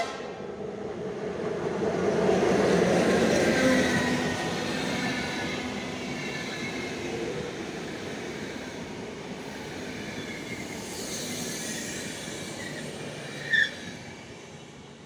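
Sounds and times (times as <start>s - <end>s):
train coaches rumbling past: 0.0s - 15.0s
high wheel squeal: 9.9s - 14.0s.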